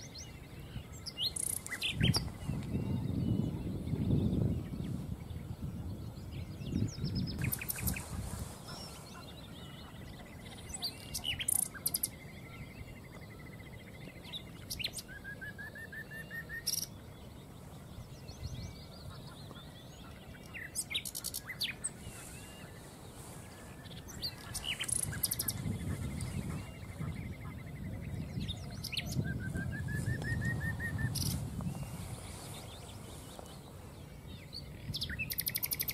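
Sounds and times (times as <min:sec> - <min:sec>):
nightingale singing: 0:00.0 - 0:35.9.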